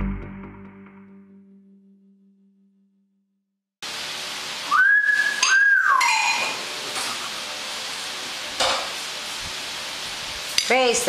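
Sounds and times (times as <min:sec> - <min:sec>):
myna bird whistles: 0:04.7 - 0:06.4.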